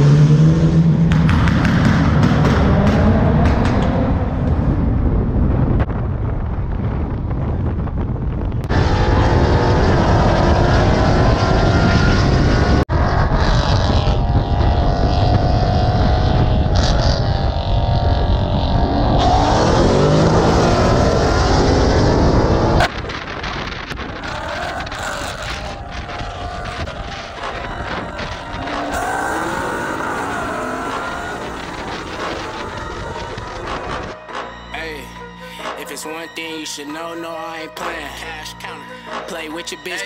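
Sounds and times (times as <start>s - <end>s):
car engines revving: 0.0s - 5.6s, 8.6s - 34.5s
wind noise on microphone: 1.4s - 34.2s.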